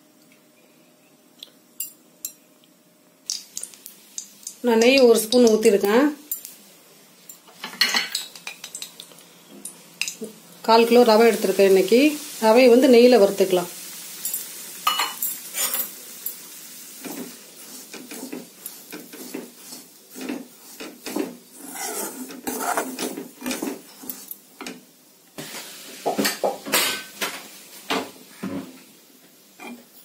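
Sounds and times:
metal ladle scraping a pan: 21.0s - 24.1s.

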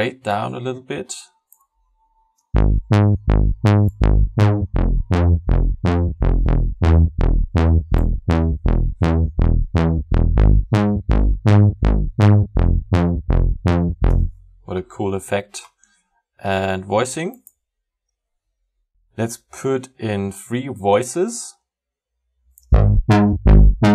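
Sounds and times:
synth bass short notes: 2.6s - 14.4s, 22.7s - 23.9s.

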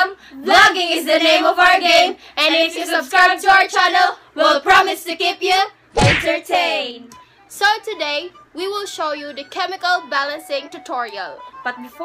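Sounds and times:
girls singing unaccompanied: 0.0s - 7.1s.

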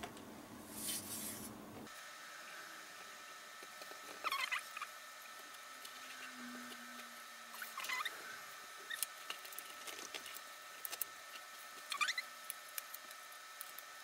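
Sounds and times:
squeaky paper crinkle: 4.2s - 4.9s, 11.4s - 12.4s.

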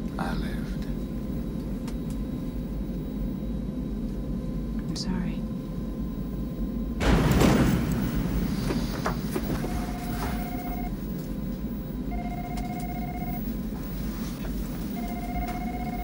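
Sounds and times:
steady low rumble: 0.0s - 16.0s
telephone ringing: 9.4s - 11.0s, 12.1s - 13.6s, 14.9s - 16.0s.

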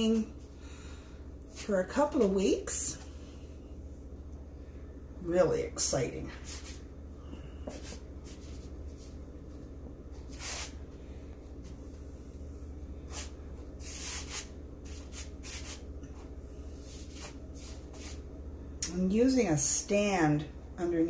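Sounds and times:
steady low hum: 0.0s - 21.0s
soft rubbing swishes: 6.4s - 6.9s, 7.7s - 9.3s, 13.1s - 18.2s.

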